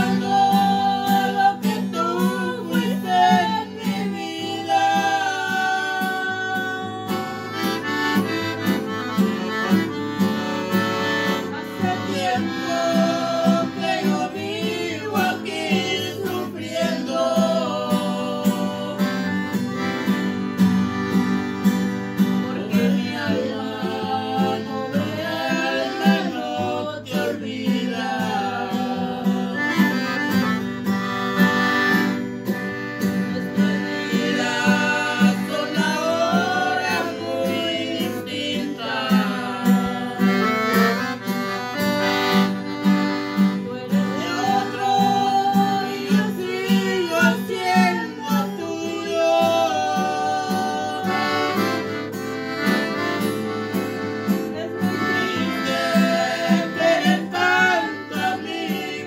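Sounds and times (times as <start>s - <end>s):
people singing along: 0.0s - 7.4s, 11.2s - 19.4s, 22.4s - 30.0s, 33.3s - 40.9s, 43.4s - 51.8s, 54.6s - 59.0s
accordion melody: 0.0s - 59.0s
acoustic guitar strumming: 0.0s - 59.0s.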